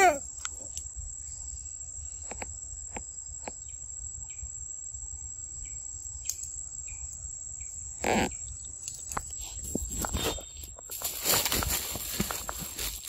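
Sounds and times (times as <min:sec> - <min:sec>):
faint chirps and clicks: 0:05.6 - 0:09.4.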